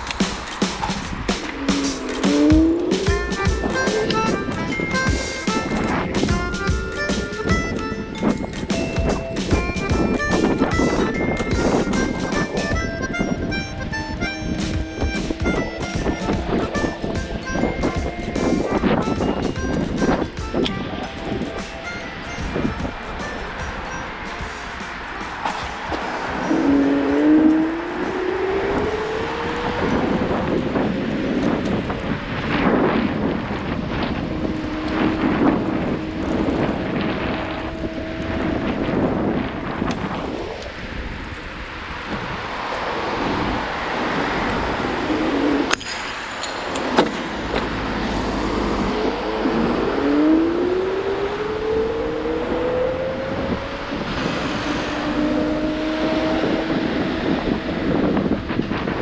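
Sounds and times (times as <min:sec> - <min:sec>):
road and wind noise: 0:00.0 - 0:59.0
electric scooter motor whine: 0:25.9 - 0:45.8.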